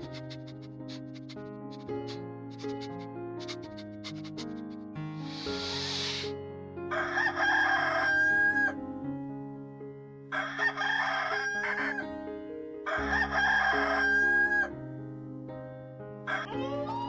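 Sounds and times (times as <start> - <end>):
background music: 0.0 - 15.7, 16.3 - 17.0
rooster crowing: 6.9 - 8.7, 10.3 - 12.0, 12.9 - 14.7, 16.3 - 16.9.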